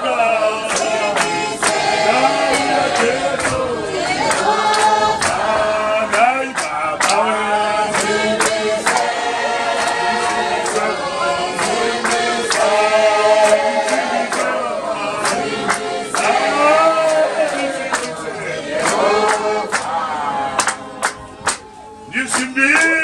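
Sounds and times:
congregation singing unaccompanied: 0:00.0 - 0:23.0
hand-clapping beat: 0:00.0 - 0:23.0.

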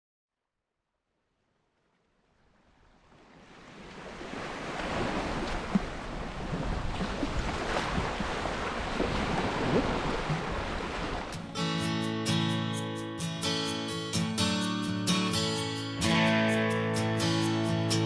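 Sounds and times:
small waves washing on sand: 0:02.6 - 0:11.4
wind on microphone: 0:04.8 - 0:11.3.

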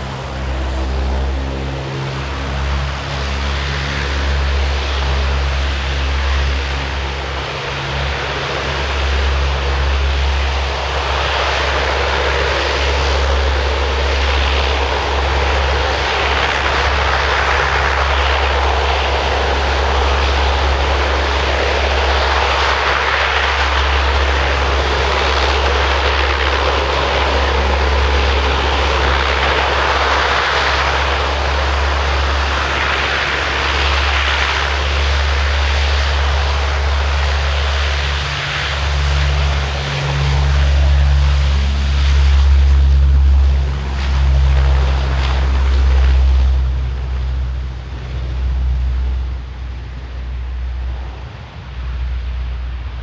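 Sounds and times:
propeller drone: 0:00.0 - 0:53.0
turboprop engine rush: 0:00.0 - 0:53.0.

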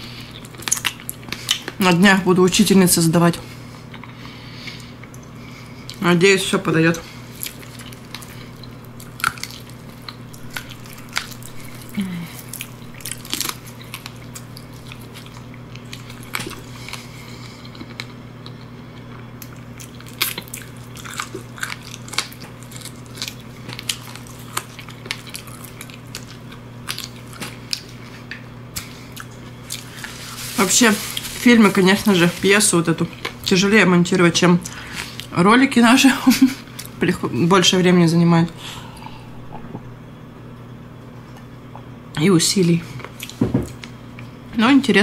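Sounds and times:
chewing crab: 0:07.3 - 0:30.2
low hum: 0:36.2 - 0:42.2.

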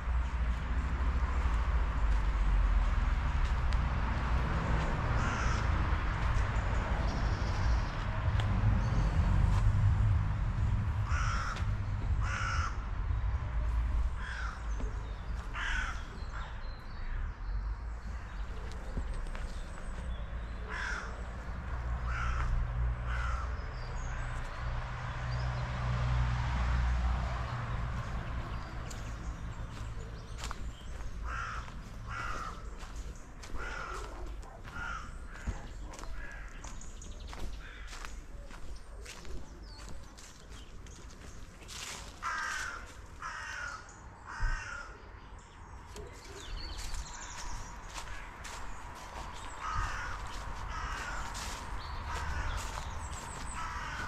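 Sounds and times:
steady low rumble: 0:00.0 - 0:24.2, 0:27.2 - 0:42.2, 0:46.0 - 0:54.0
crow cawing: 0:05.1 - 0:06.2, 0:11.0 - 0:12.9, 0:14.1 - 0:17.2, 0:20.6 - 0:21.4, 0:22.0 - 0:24.4, 0:28.6 - 0:39.2, 0:41.7 - 0:45.0, 0:46.8 - 0:54.0.

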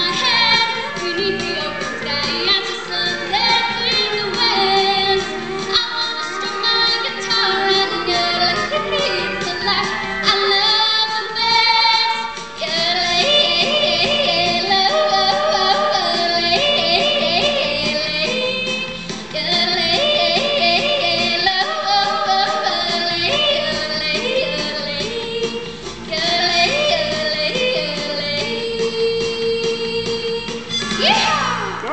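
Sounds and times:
country backing music: 0:00.0 - 0:31.9
girl yodeling: 0:29.4 - 0:31.9.

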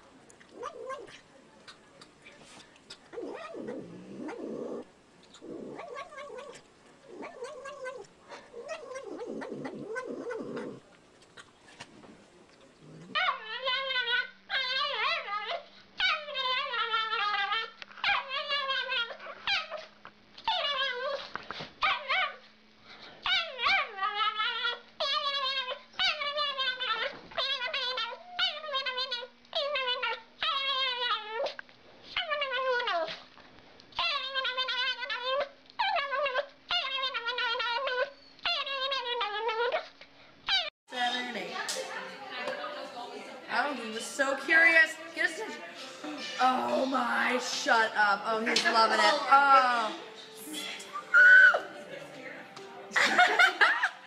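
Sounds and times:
cat growling: 0:00.4 - 0:01.8, 0:02.9 - 0:15.5
small dog howling: 0:51.0 - 0:51.8.

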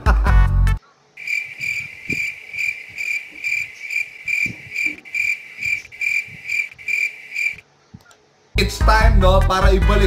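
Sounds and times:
cricket chirping: 0:01.2 - 0:07.6.

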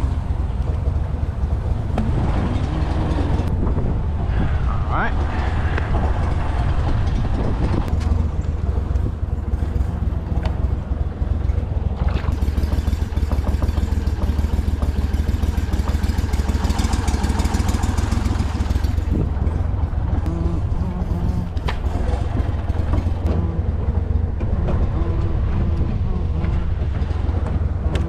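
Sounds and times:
boat motor running: 0:06.2 - 0:28.0.

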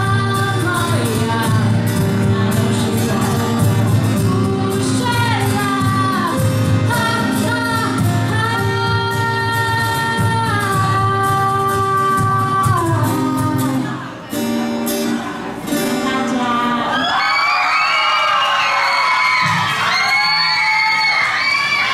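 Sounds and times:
girl singing: 0:00.0 - 0:14.2, 0:15.8 - 0:17.1
live band playing pop-rock: 0:00.0 - 0:16.9
acoustic guitar: 0:00.0 - 0:18.4, 0:19.2 - 0:21.9.

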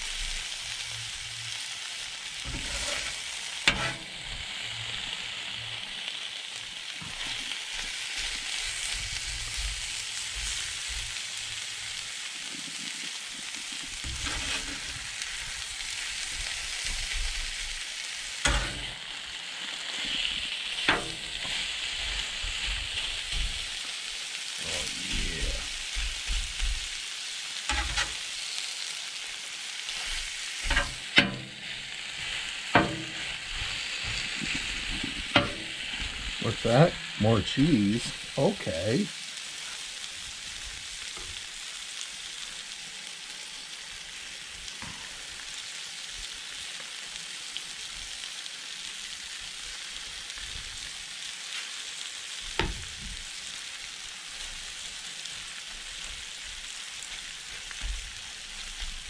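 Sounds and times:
meat sizzling on griddle: 0:00.0 - 0:59.0
metal spatula clanking on griddle: 0:02.5 - 0:04.3, 0:14.1 - 0:15.0, 0:18.4 - 0:19.1, 0:20.8 - 0:21.7, 0:27.7 - 0:28.2, 0:30.6 - 0:31.8, 0:32.7 - 0:34.2, 0:34.8 - 0:35.8.

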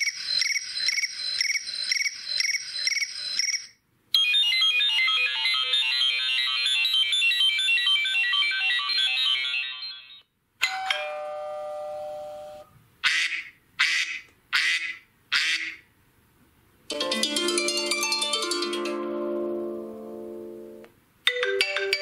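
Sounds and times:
ringing chime: 0:04.9 - 0:12.7
bright plucked notes: 0:16.9 - 0:22.0.

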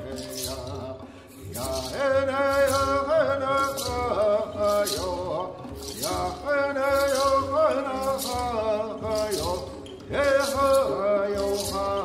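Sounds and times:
hand rattle shaken: 0:00.0 - 0:12.0
man chanting: 0:00.0 - 0:12.0.

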